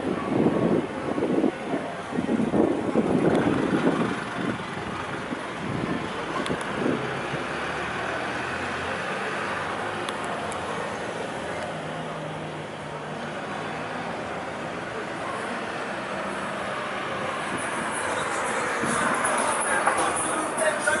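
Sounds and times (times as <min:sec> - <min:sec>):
wind gusting on microphone: 0:00.0 - 0:07.6, 0:16.6 - 0:19.8.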